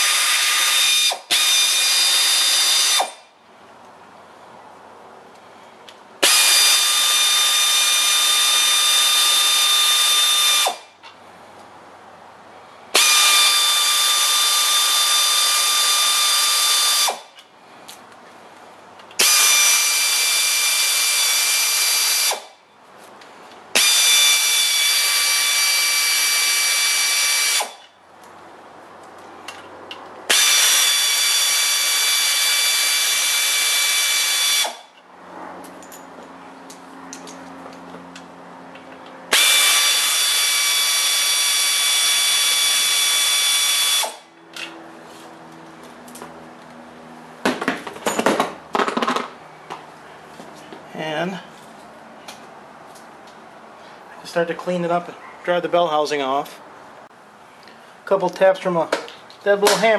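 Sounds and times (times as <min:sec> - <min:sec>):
pneumatic air ratchet whining: 0:00.0 - 0:03.3, 0:06.2 - 0:10.9, 0:12.9 - 0:17.4, 0:19.1 - 0:22.6, 0:23.7 - 0:27.9, 0:30.3 - 0:35.0, 0:39.3 - 0:44.7.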